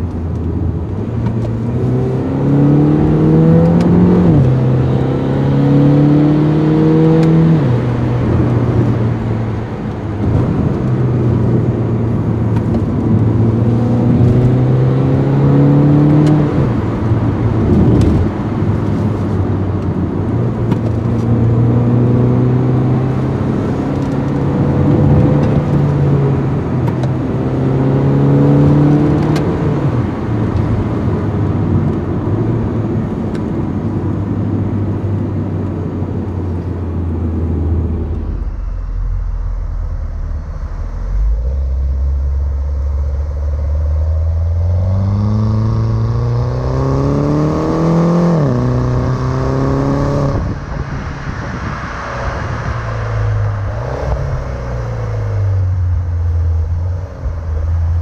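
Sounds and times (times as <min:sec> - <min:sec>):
car engine accelerating: 0:00.0 - 0:58.0.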